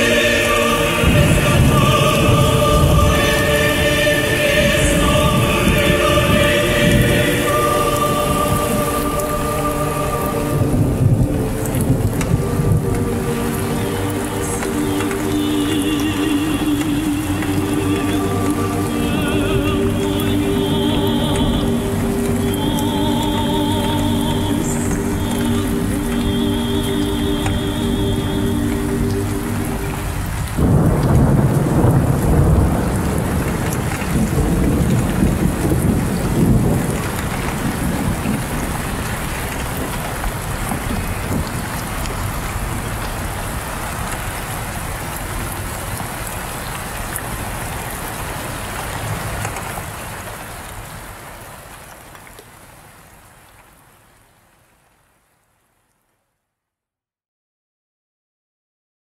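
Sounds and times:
music chord: 0.0s - 33.0s
thunder rumbling: 0.0s - 50.0s
steady rain: 0.0s - 56.6s.

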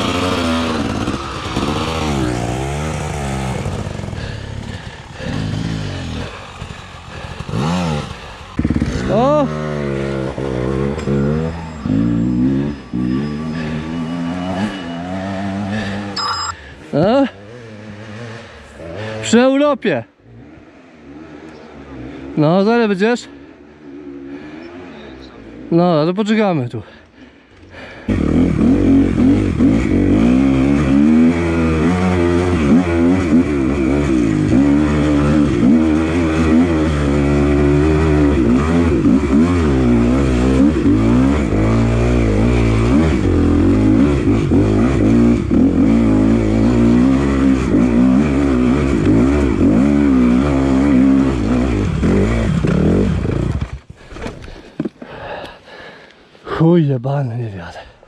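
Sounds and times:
dirt bike engine revving: 0.0s - 19.6s, 27.8s - 54.3s.

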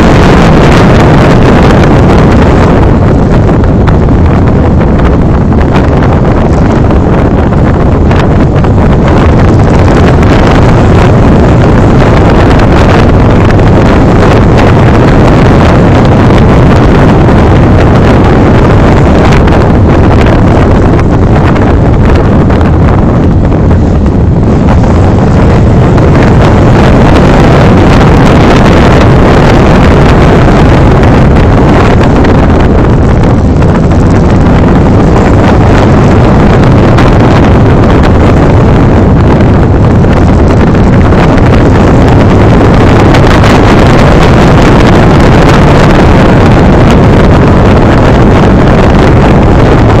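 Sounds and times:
motorcycle engine running: 0.0s - 39.0s
wind buffeting microphone: 0.0s - 50.0s.

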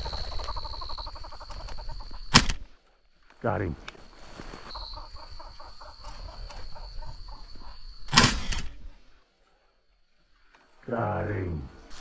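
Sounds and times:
game bird clucking: 0.0s - 2.5s, 4.7s - 7.8s.

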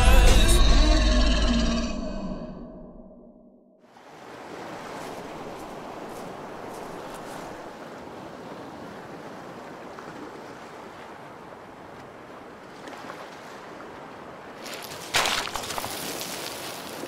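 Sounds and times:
waves on a pebble beach: 3.9s - 17.0s.

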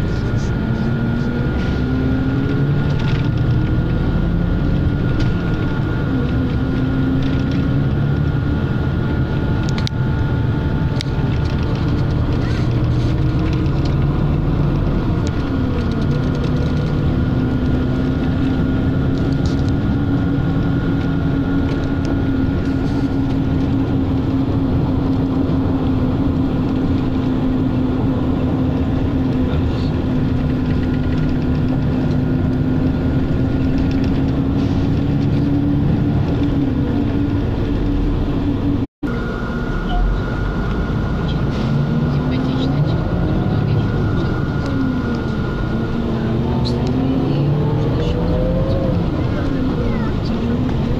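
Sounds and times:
vehicle drone and rumble: 0.0s - 50.9s
whining tone changing pitch: 39.0s - 50.9s.

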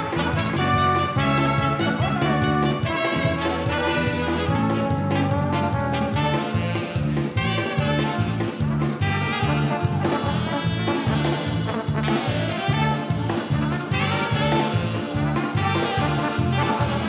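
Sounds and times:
bouncing bass beat: 0.0s - 17.0s
up-tempo brass band music: 0.0s - 17.0s.

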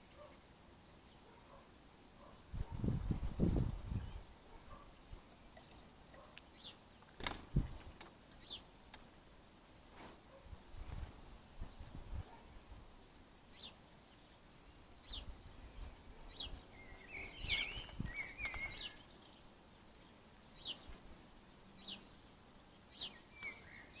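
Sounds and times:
small bird calling: 3.4s - 10.5s, 14.8s - 21.0s, 21.8s - 24.0s
bird twittering: 9.9s - 10.2s, 16.4s - 19.1s.

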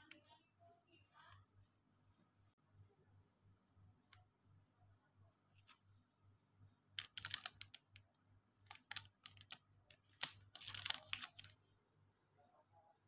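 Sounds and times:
plastic packaging crinkling: 8.7s - 11.5s.

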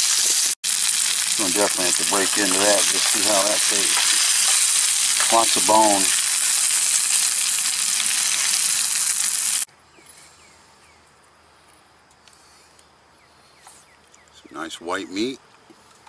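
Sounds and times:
fish sizzling in oil: 0.0s - 9.7s.

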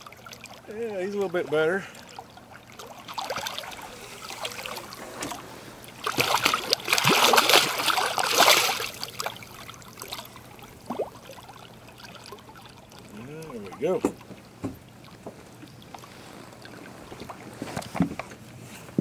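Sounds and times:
fish thrashing and splashing: 0.0s - 18.0s.

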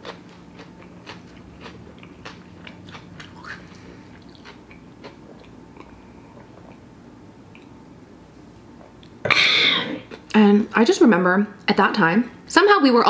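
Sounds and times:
wet chewing mouth clicks: 0.6s - 6.8s.

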